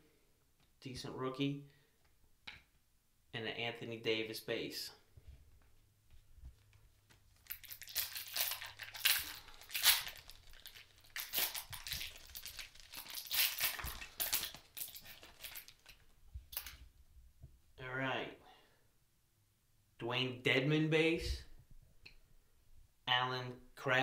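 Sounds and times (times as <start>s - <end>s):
card pack wrapper crinkling: 7.3s - 16.8s.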